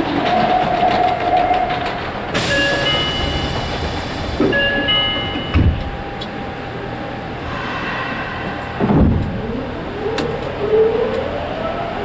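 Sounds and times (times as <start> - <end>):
subway train rumbling in tunnel: 0.0 - 12.0
low thumps: 8.0 - 10.3.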